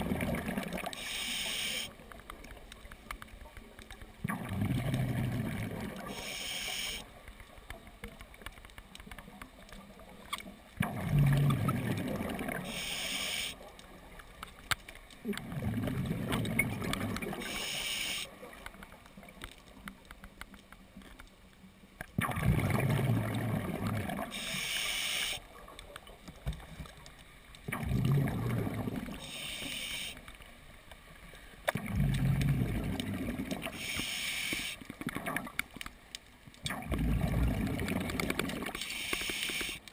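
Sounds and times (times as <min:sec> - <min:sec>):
bubbling exhaust underwater: 0:00.0 - 0:01.9, 0:04.2 - 0:07.0, 0:10.8 - 0:13.6, 0:15.2 - 0:18.3, 0:22.2 - 0:25.4, 0:27.7 - 0:30.1, 0:31.7 - 0:35.6, 0:36.6 - 0:39.8
air hissing through regulator: 0:01.0 - 0:01.9, 0:06.1 - 0:07.0, 0:12.7 - 0:13.6, 0:17.4 - 0:18.3, 0:24.3 - 0:25.4, 0:29.2 - 0:30.2, 0:33.7 - 0:34.8, 0:38.8 - 0:39.8.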